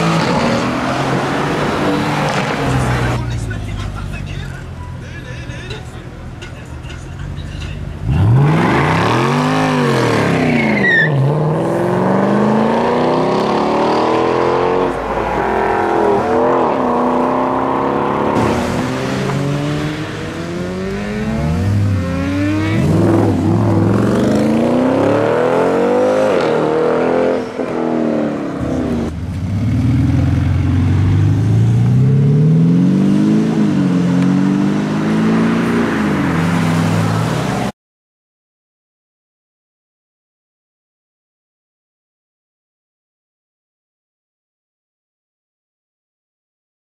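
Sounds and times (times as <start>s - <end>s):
car engines accelerating hard: 0.0s - 4.5s, 7.2s - 37.7s.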